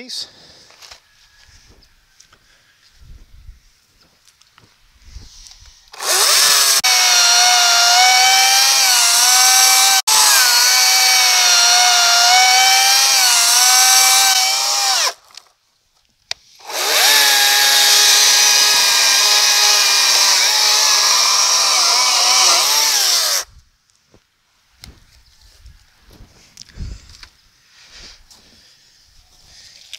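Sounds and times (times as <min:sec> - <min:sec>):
electric chainsaw cutting wood: 0:05.9 - 0:15.3, 0:16.6 - 0:23.5.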